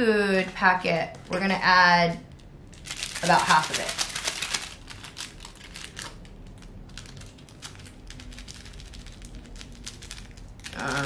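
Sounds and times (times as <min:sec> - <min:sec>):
plastic packet crinkling: 0:02.3 - 0:11.0.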